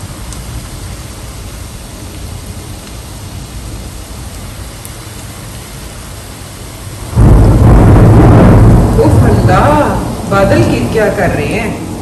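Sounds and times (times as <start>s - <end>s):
batter deep-frying in oil: 0.0s - 8.7s.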